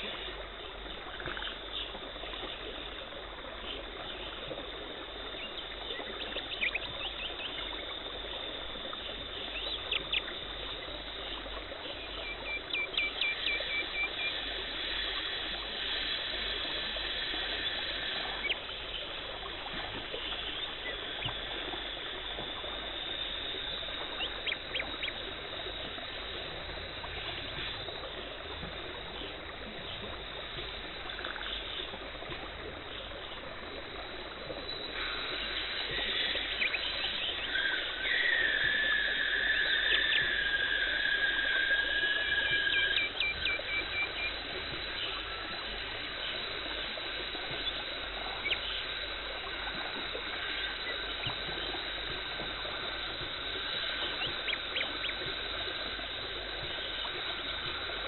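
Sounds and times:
water spray and suction hiss: 0:13.1 - 0:58.0.

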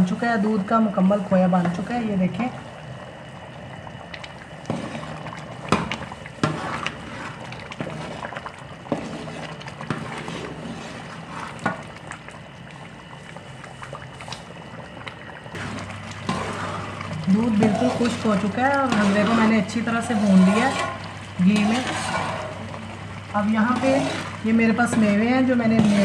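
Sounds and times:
food bubbling and sizzling in pot: 0:00.0 - 0:26.0
metal spoon scraping pot: 0:16.3 - 0:22.6, 0:23.6 - 0:26.0.

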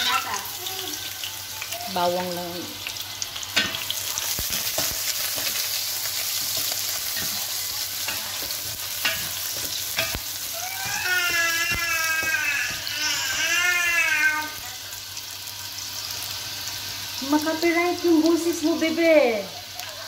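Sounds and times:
garlic sizzling in hot oil: 0:00.0 - 0:20.0
spatula scraping pan: 0:03.6 - 0:13.4.

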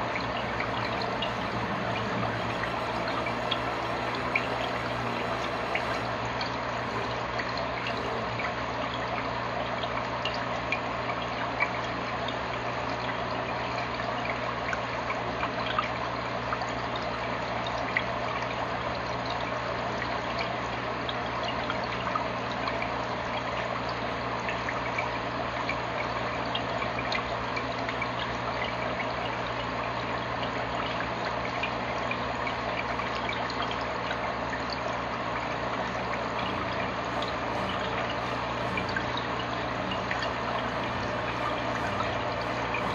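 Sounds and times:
low steady hum: 0:00.0 - 0:09.2, 0:27.6 - 0:42.9
filter water trickling and splashing: 0:00.0 - 0:42.9.

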